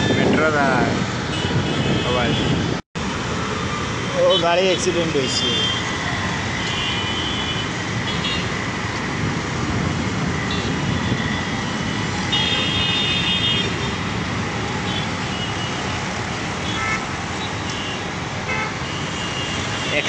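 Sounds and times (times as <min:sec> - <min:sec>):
road traffic noise: 0:00.0 - 0:20.0
car horns honking: 0:12.3 - 0:13.9.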